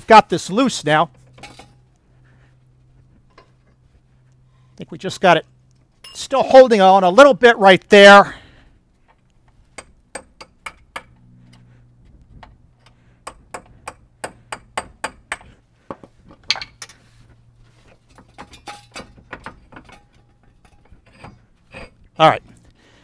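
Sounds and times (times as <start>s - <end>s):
hammer striking metal chisel: 9.8s - 11.2s, 13.2s - 16.8s.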